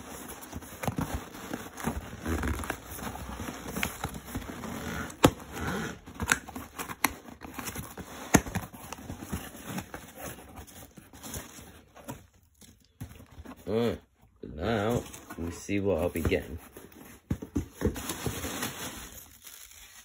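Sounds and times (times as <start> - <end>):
packing peanuts rustling: 18.1 - 20.0.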